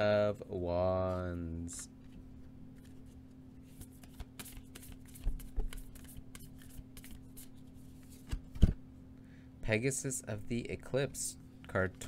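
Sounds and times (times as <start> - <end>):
cards sliding and ticking: 2.8 - 8.4.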